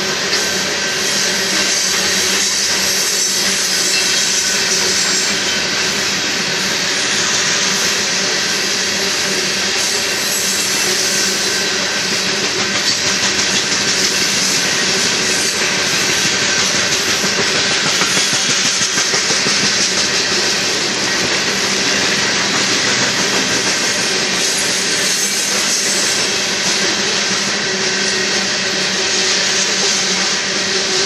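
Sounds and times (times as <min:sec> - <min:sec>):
freight train rolling past: 0:00.0 - 0:31.0.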